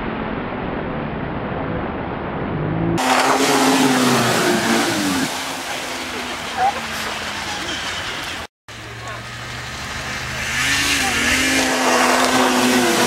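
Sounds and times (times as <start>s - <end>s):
snowmobile engine running hard: 8.7s - 13.0s.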